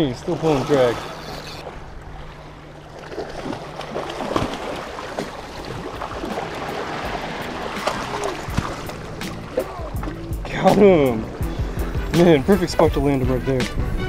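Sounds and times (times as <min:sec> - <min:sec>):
waves washing against rocks: 0:03.4 - 0:10.1.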